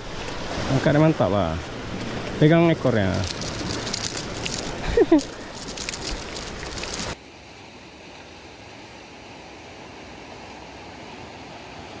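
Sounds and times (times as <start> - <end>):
sea surf: 0.0 - 5.1
crackling noise: 3.1 - 7.2.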